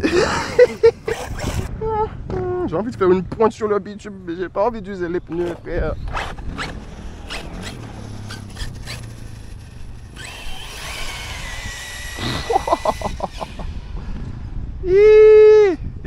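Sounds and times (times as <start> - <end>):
rattling pulses: 0.9 - 1.8, 5.2 - 14.8
electric motor whine: 6.1 - 14.4.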